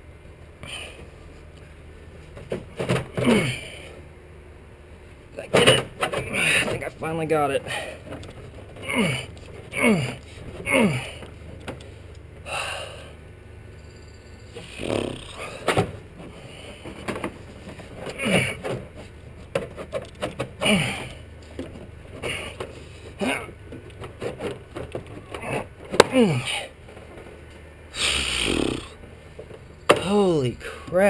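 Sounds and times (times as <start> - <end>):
man breathing hard: 0.6 - 1.2, 12.4 - 13.2, 27.9 - 29.0
man groaning: 3.2 - 3.9, 8.8 - 11.2, 14.7 - 15.7, 18.2 - 18.6, 20.6 - 21.2, 23.2 - 23.5, 25.4 - 26.7, 28.0 - 29.0
clicks and scrapes of parts: 15.6 - 20.6, 21.3 - 26.1.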